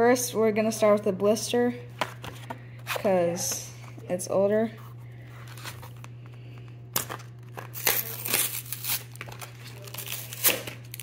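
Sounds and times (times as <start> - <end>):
plastic crinkling: 5.4 - 11.0
cardboard tearing: 7.0 - 11.0.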